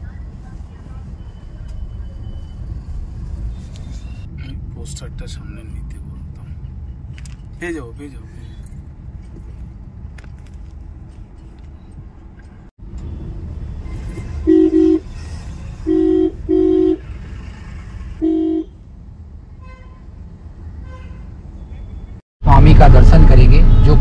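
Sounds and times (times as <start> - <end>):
road rumble inside car: 0.0 - 18.2
vehicle horn blasts: 13.8 - 15.1, 15.8 - 17.1, 18.2 - 18.8.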